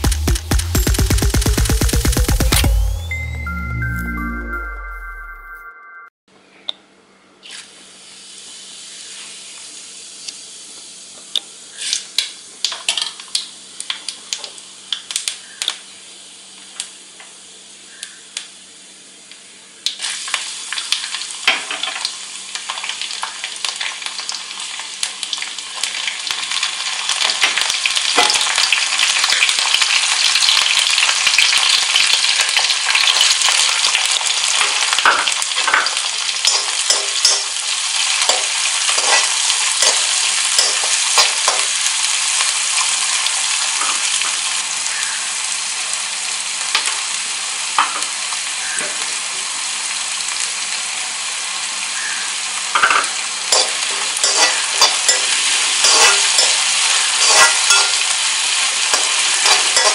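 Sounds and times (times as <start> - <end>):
hot oil sizzling: 0.0 - 3.0, 7.4 - 59.9.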